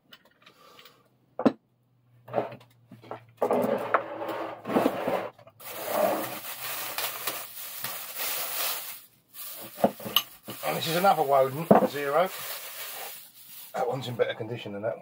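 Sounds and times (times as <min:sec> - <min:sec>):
plastic bag rustling: 0:05.6 - 0:14.2.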